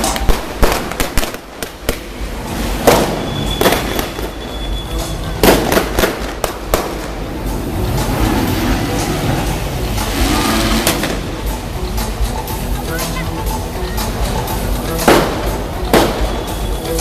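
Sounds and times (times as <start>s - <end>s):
pyrotechnic bangs and cracks: 0.0s - 11.6s, 14.9s - 17.0s.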